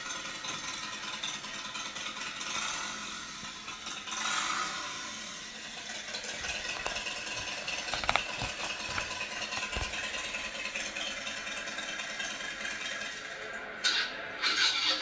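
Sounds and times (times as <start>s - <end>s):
sharp paper clicks: 6.1s - 10.8s
book pages turning: 6.2s - 10.6s.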